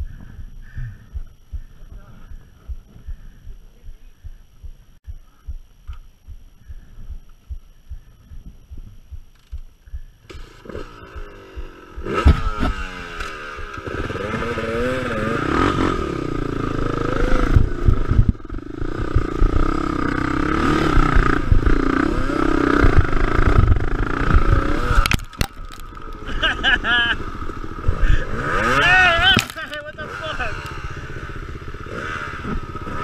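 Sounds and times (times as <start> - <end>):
dirt bike engine revving: 10.3 - 33.0.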